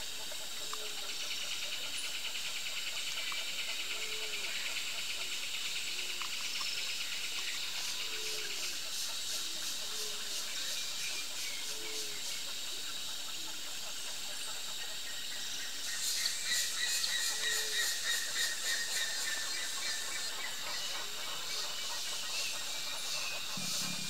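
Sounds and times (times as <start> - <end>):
insect chorus buzzing: 0.0 - 24.0.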